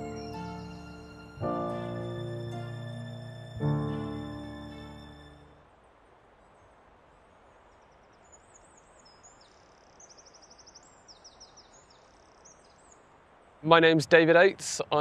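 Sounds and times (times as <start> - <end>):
birdsong chirps and trills: 0.0 - 5.2, 7.4 - 13.6
quiet outdoor hiss: 0.0 - 15.0.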